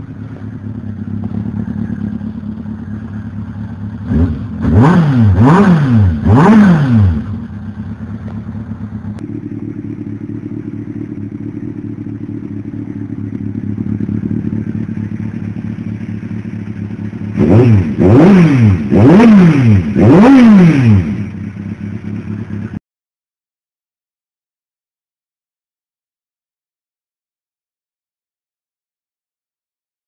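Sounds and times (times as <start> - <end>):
motorcycle engine idling: 0.0 - 22.8
motorcycle engine revving: 0.0 - 22.8.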